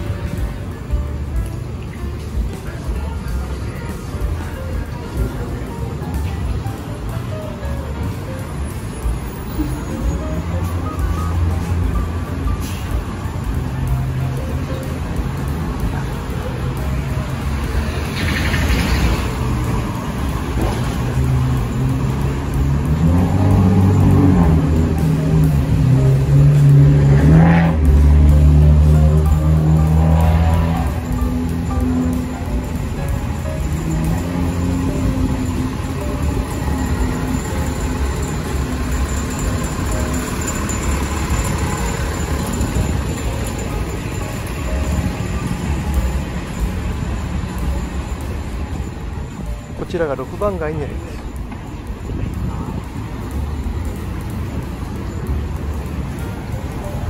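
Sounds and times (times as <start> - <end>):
city street rumble: 0.0 - 57.0
vehicle engines running: 0.0 - 57.0
engine speeding up: 18.1 - 43.6.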